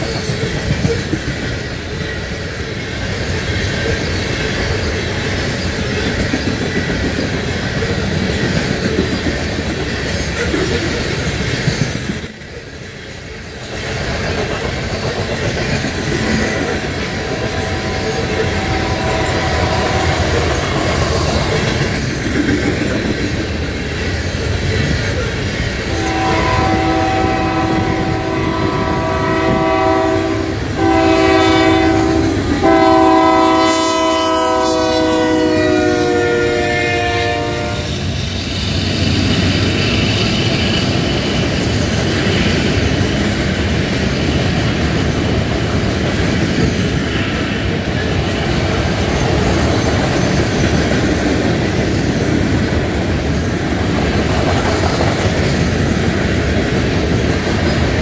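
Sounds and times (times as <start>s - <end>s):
freight train cars rolling past: 0.0s - 58.0s
locomotive air horn: 17.3s - 21.2s, 25.8s - 38.0s.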